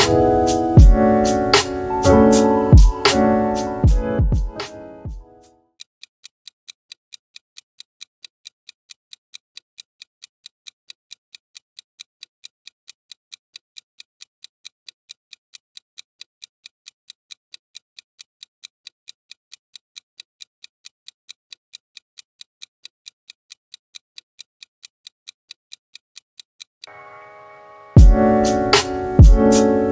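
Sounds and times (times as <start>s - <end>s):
clock-like timer ticking: 0.0s - 5.2s, 28.0s - 29.9s.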